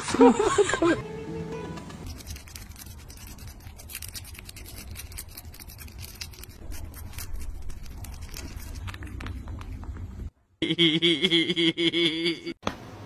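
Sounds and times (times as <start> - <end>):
toothbrush scrubbing teeth: 2.0 - 9.8.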